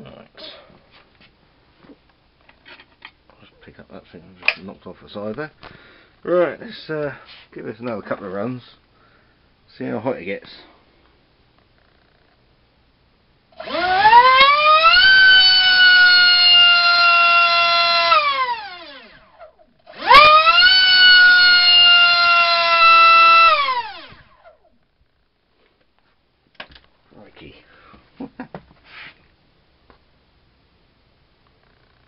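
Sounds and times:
electric motor spinning propeller: 13.6 - 24.5.

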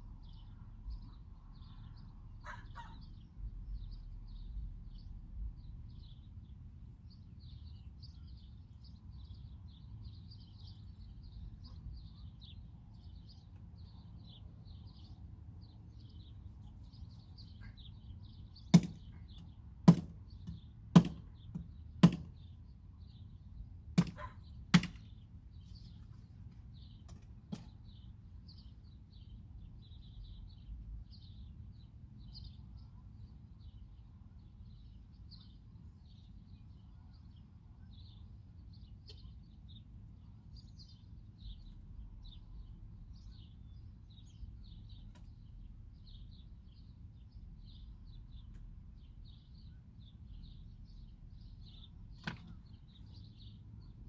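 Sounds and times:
sharp knocks: 18.7 - 19.1, 19.8 - 22.3.

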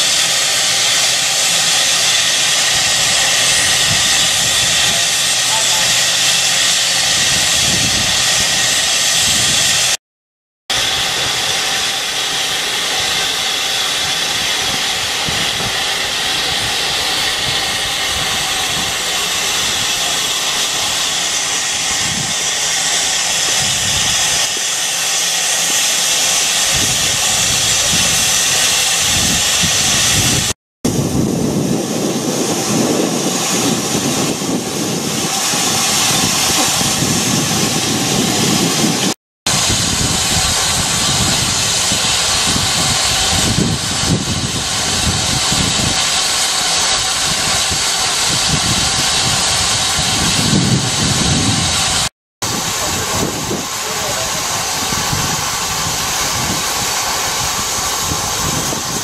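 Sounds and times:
steam hissing from locomotive: 0.0 - 10.0, 10.7 - 59.0.

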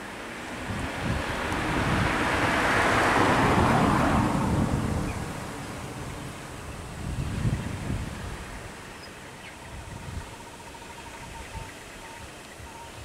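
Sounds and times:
low engine rumble: 0.0 - 11.6
vehicle driving past: 0.3 - 8.8.

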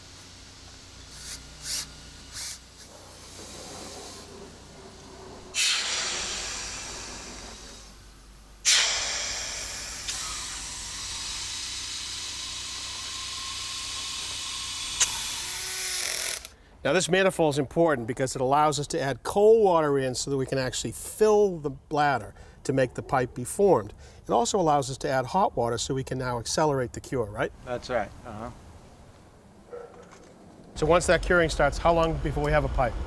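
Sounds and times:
pressurised air rushing hiss: 0.0 - 16.4.

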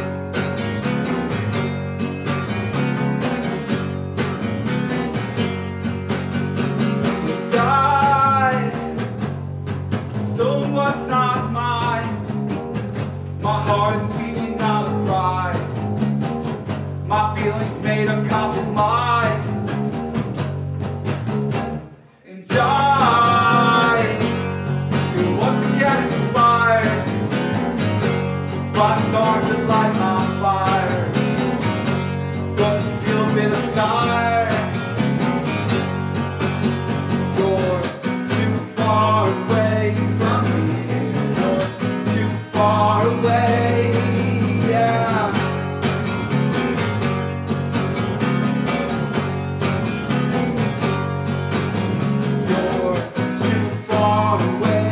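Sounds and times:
acoustic guitar: 0.0 - 54.9
electric bass: 0.0 - 54.9
man singing: 7.1 - 9.0, 10.1 - 12.4, 13.3 - 16.1, 17.0 - 20.0, 22.1 - 35.3, 36.9 - 46.0, 52.2 - 54.9.

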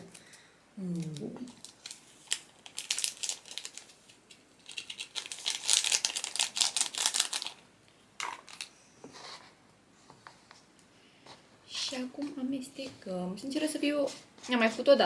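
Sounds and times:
plastic sachet crinkling: 0.0 - 7.6, 8.2 - 8.7.

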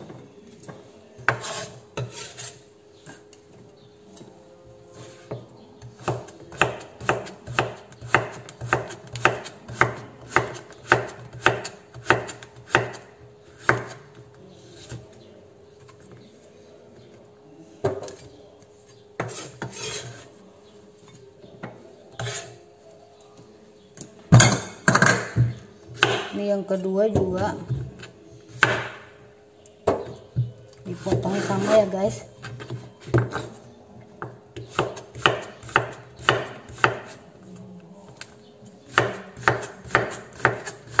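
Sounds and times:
knife chopping on wooden board: 6.0 - 14.0, 26.0 - 26.3, 34.2 - 37.2, 38.9 - 41.0.

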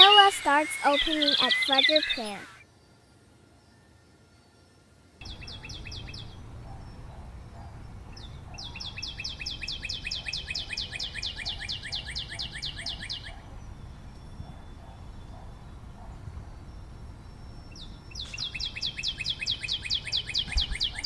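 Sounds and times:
small bird chirping: 0.0 - 2.6, 5.2 - 21.0.

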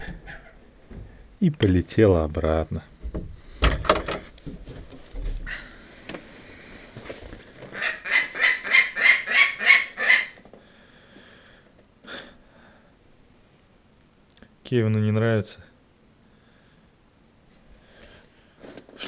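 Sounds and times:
falcon harsh calls: 7.7 - 10.4.

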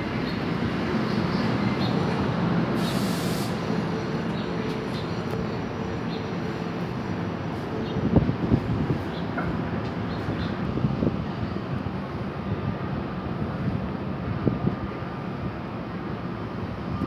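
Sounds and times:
train coaches rumbling past: 0.0 - 17.0
air release hiss: 2.8 - 3.7.

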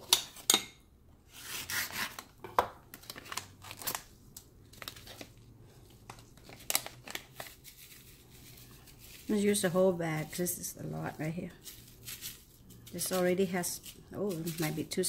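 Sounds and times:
plastic bag crinkling: 3.0 - 15.0.

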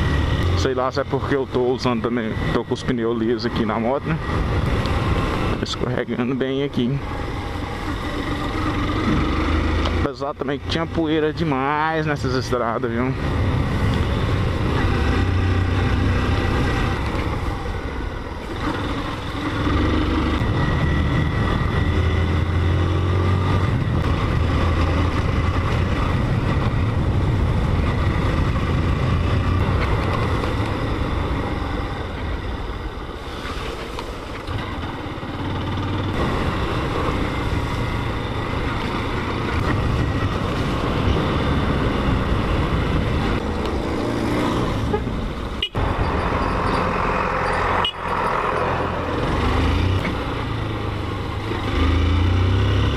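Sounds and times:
motorcycle engine running: 7.0 - 10.0
wind rushing over microphone: 13.0 - 35.2, 35.8 - 47.8.

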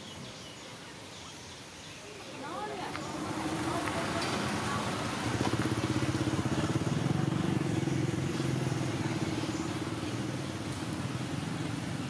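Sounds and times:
vehicle engine throbbing: 2.9 - 12.0.

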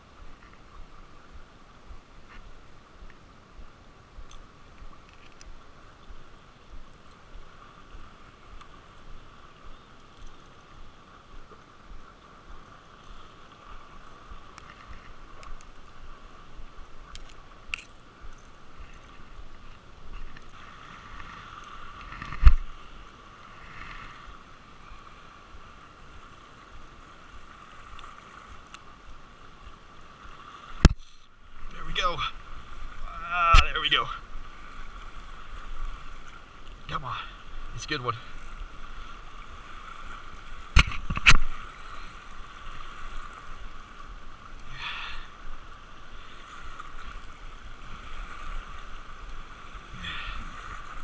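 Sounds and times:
small waves lapping on rocks: 0.0 - 51.0
fishing tackle clicks: 5.0 - 5.6, 10.0 - 10.7, 14.5 - 15.9, 17.1 - 19.1, 38.3 - 38.6.

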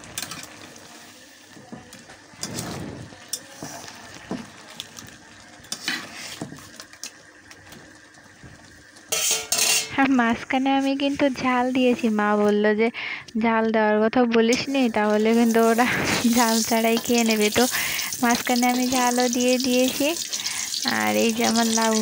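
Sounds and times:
curry simmering and sizzling: 0.0 - 12.4, 14.6 - 22.0
spatula scraping and clinking on pan: 9.1 - 10.0.

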